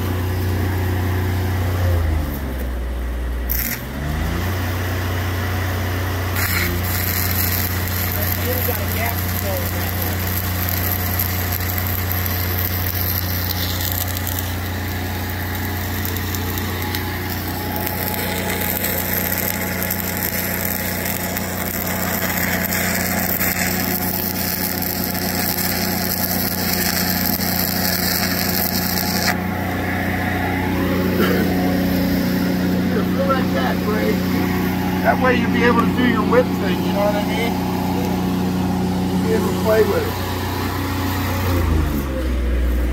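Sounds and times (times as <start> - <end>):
welder engine drone: 0.0 - 42.9
welding arc crackle: 3.5 - 4.1, 6.3 - 29.8.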